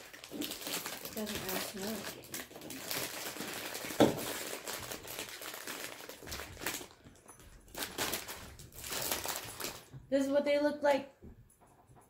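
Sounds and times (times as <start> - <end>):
plastic snack bag crinkling: 0.0 - 10.0.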